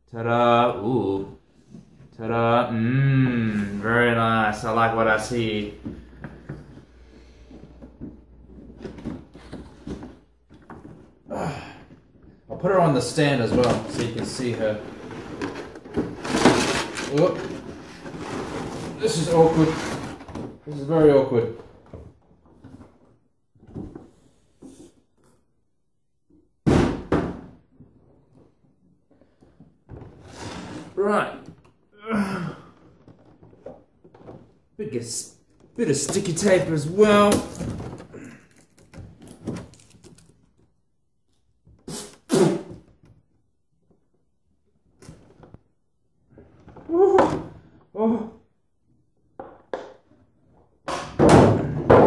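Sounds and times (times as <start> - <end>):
plastic packaging rustling: 13.6 - 20.3, 35.9 - 40.7
loud plastic crackles: 37.1 - 40.5.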